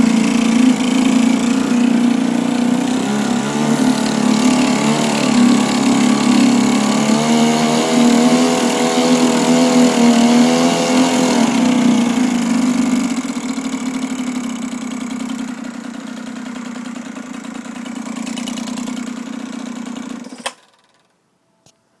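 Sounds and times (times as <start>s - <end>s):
propeller churning water: 0.0s - 14.5s
outboard motor running: 0.0s - 20.4s
motor cutoff click: 18.2s - 19.0s.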